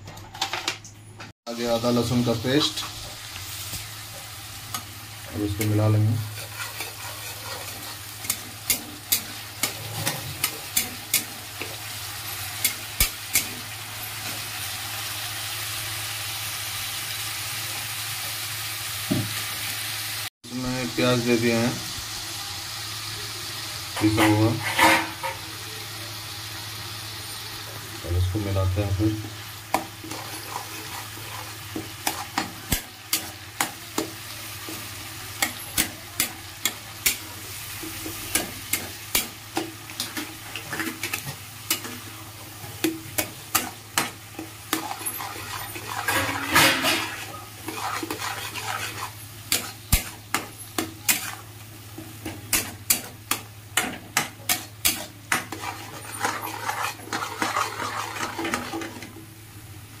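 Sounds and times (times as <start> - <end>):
paste sizzling in oil: 1.5 - 60.0
metal spatula scraping a pan: 4.0 - 14.6, 24.0 - 25.5, 29.3 - 59.2.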